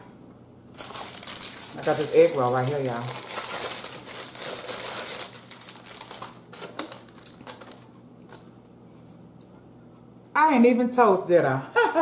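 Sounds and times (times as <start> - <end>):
paper napkin rustling: 0.8 - 7.9.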